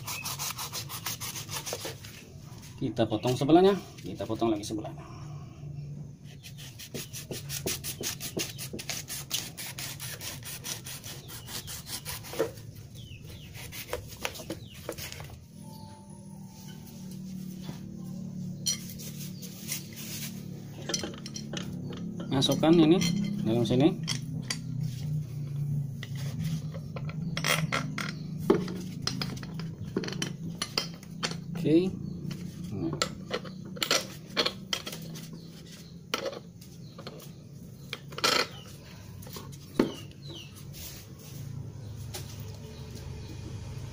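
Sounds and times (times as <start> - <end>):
knife sawing through washboard: 0.0 - 2.0, 6.4 - 12.6
metal clinks and scrapes: 16.4 - 31.6, 32.3 - 41.4.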